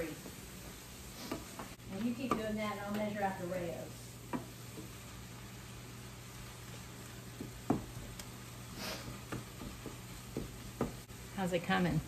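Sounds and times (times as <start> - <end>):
wooden spoon scraping a pan: 0.1 - 3.4, 6.3 - 11.1.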